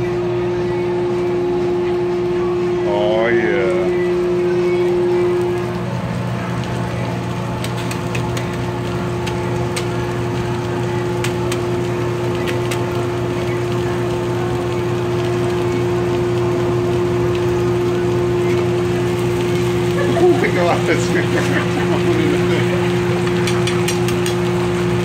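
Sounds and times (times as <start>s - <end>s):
griddle hum and hiss: 0.0s - 25.0s.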